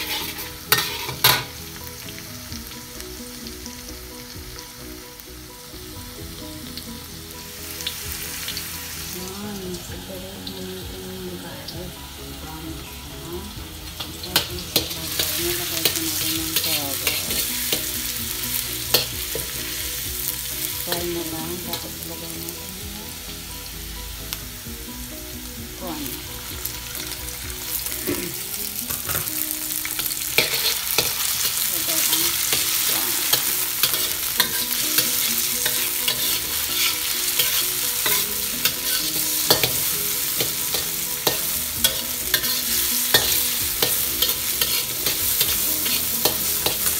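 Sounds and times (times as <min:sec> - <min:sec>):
metal spatula scraping a wok: 0:00.0 - 0:01.6, 0:14.0 - 0:22.0, 0:26.9 - 0:46.9
oil sizzling in a wok: 0:00.0 - 0:46.9.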